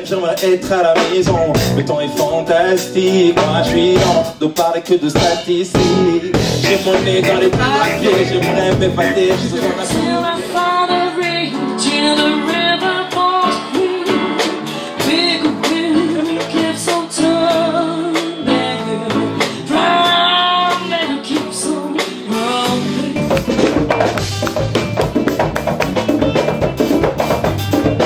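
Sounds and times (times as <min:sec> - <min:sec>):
bass: 0:00.0 - 0:28.0
drums: 0:00.0 - 0:28.0
guitar: 0:00.0 - 0:28.0
woman singing: 0:05.2 - 0:23.9.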